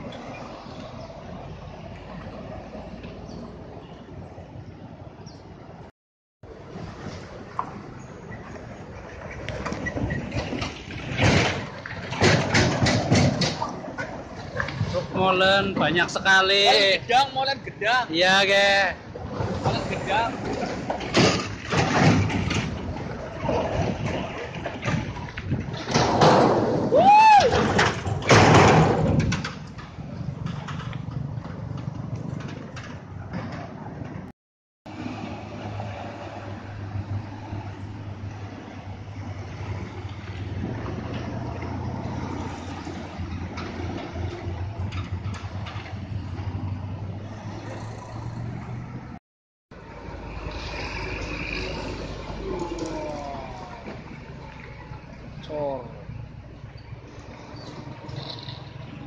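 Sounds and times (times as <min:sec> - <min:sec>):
road noise: 0:00.0 - 0:59.0
motorbike passing close: 0:38.7 - 0:49.2, 0:49.8 - 0:55.2.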